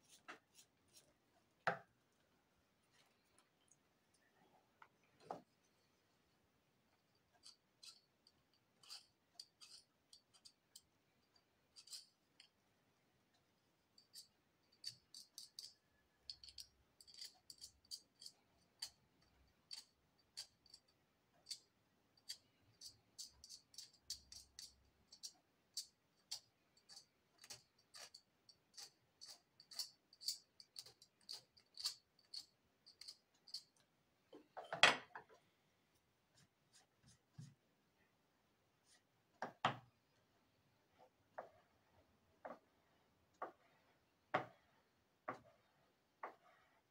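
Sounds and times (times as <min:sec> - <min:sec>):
metal pick scraping and clicking: 0:14.0 - 0:33.9.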